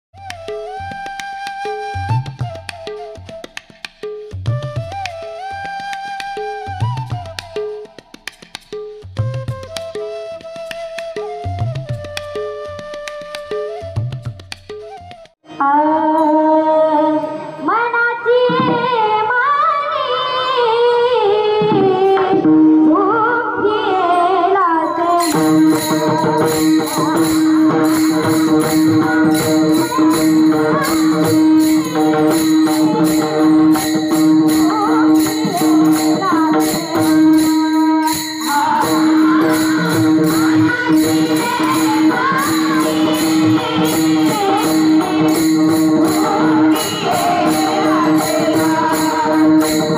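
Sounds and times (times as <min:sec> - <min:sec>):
brass hand cymbals beating: 0:25.1 - 0:49.9.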